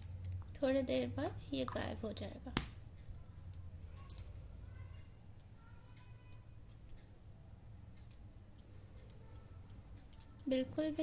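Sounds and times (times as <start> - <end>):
low room hum: 0.0 - 11.0
faint irregular ticks: 7.9 - 11.0.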